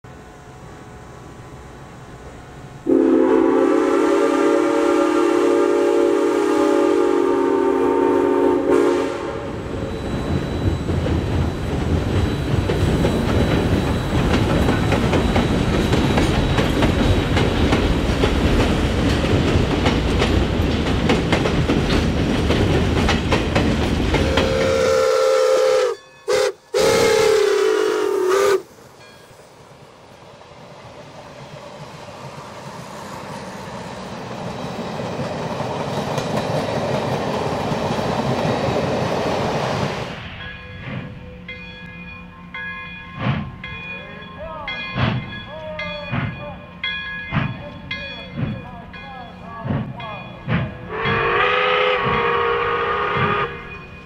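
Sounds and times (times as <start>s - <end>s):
train rumbling and clattering past: 0.0s - 54.0s
steam locomotive whistle: 2.8s - 10.8s, 24.2s - 28.8s, 50.9s - 53.9s.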